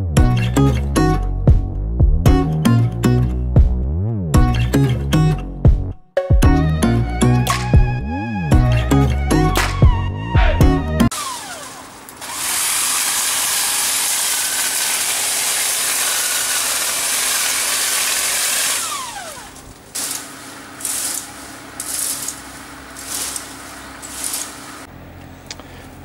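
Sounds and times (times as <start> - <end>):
rake scraping over ground: 11.1 - 15.0, 19.4 - 24.9
electric hedge trimmer running: 11.1 - 24.9.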